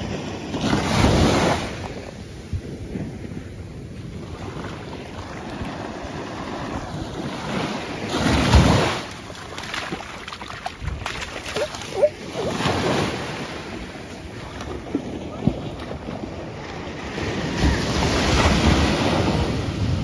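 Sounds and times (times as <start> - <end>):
ocean surf washing onto sand: 0.0 - 20.0
wind on microphone: 0.0 - 20.0
wave breaking: 4.3 - 19.9.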